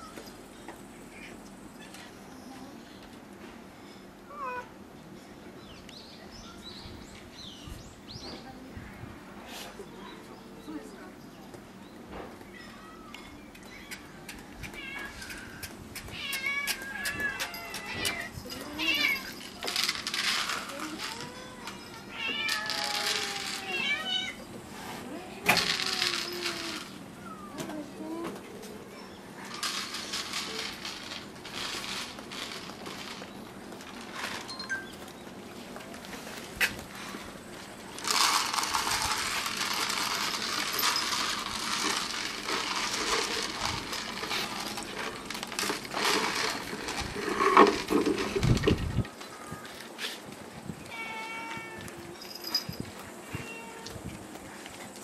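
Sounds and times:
cats meowing: 12.5s - 19.7s, 20.8s - 24.5s, 50.8s - 52.2s, 53.2s - 54.2s
cat meowing: 50.9s - 52.0s.

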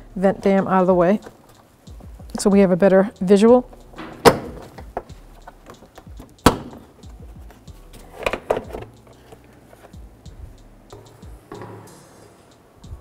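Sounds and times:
plastic panel snapping: 4.0s - 5.1s, 5.7s - 6.9s
plastic clacking and rattling: 8.2s - 9.1s.

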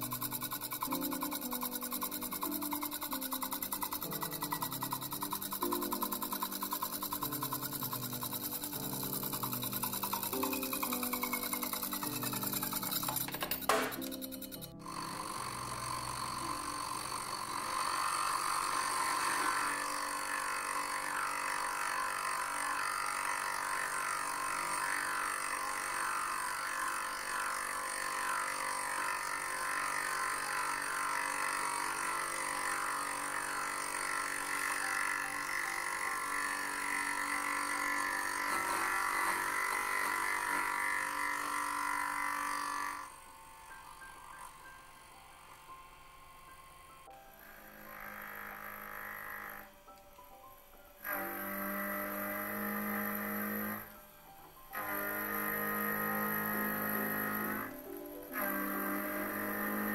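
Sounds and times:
milling machine cutting metal: 0.0s - 49.9s, 51.0s - 59.9s.

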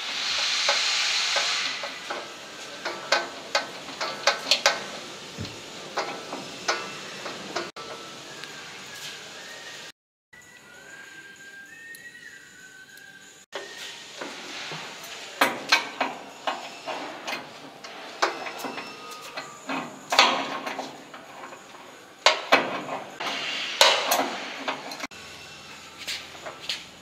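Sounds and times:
wrench clinking and scraping metal: 0.7s - 8.0s, 13.6s - 27.0s.

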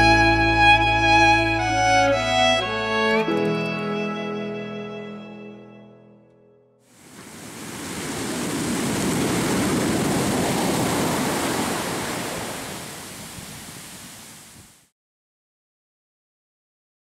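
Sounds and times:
sea surf washing up sand: 6.9s - 14.9s.

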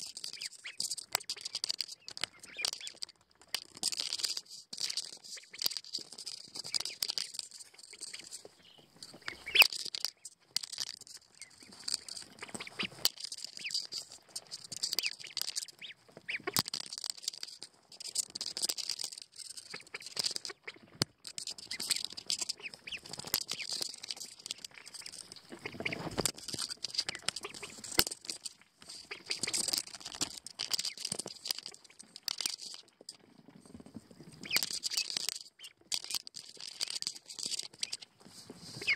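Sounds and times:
rustling in wood shavings: 0.0s - 38.9s
ducklings peeping: 0.2s - 3.1s, 5.0s - 10.3s, 11.3s - 16.6s, 19.5s - 26.3s, 27.0s - 28.0s, 29.0s - 29.9s.

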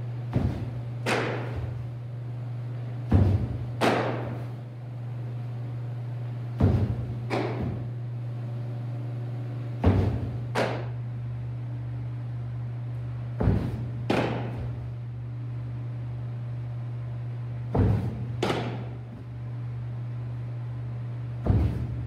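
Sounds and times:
low electrical hum: 0.0s - 22.0s
foot landing hard on mound: 0.2s - 1.9s, 3.0s - 4.6s, 6.5s - 7.9s, 9.8s - 11.0s, 13.3s - 14.9s, 17.6s - 19.2s, 21.3s - 22.0s
ball striking target: 0.3s - 1.8s, 3.1s - 4.4s, 6.6s - 7.9s.

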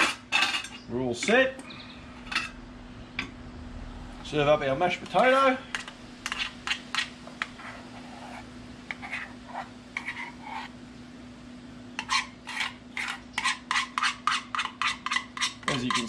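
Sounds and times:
metal spoon scraping saucepan: 0.0s - 1.4s, 2.1s - 2.6s, 5.1s - 10.8s, 11.9s - 16.0s
faint steady hum: 0.0s - 16.0s.

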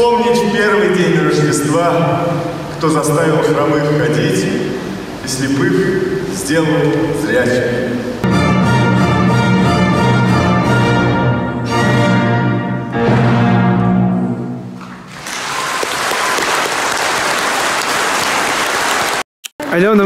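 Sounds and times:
orchestra playing: 8.2s - 15.4s
audience applause: 14.8s - 19.2s.

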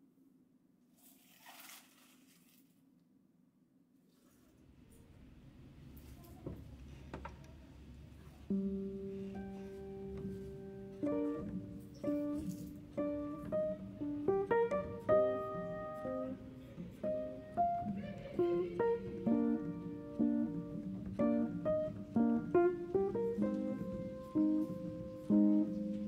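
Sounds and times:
gentle plucked guitar melody: 8.5s - 26.0s.

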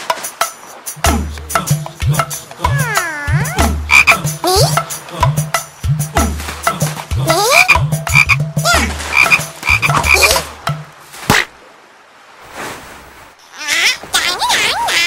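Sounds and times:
cartoon frog croaking: 2.6s - 4.8s, 7.2s - 10.4s.

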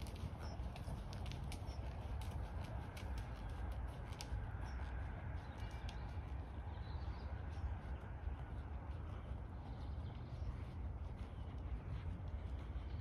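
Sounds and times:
horse hooves on soft ground: 0.0s - 13.0s
bird chirping: 3.3s - 13.0s.

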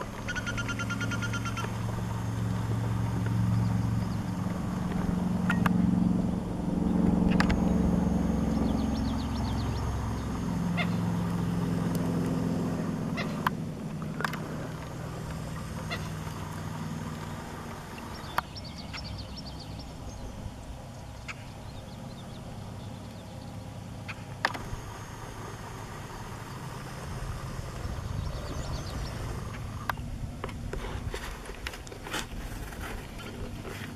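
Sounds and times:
birds calling from reeds: 0.0s - 30.1s
steady low background noise: 0.0s - 33.9s.

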